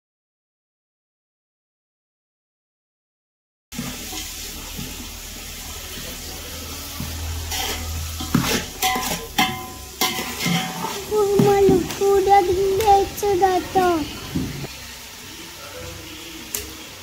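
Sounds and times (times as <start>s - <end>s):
vegetables sizzling in oil: 3.7s - 17.0s
spatula scraping metal pot: 7.0s - 14.7s.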